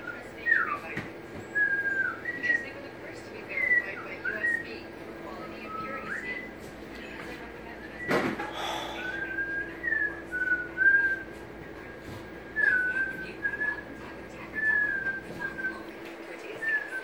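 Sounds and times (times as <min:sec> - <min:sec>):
steady low hum: 0:00.0 - 0:17.0
person whistling a slow tune: 0:09.0 - 0:11.2.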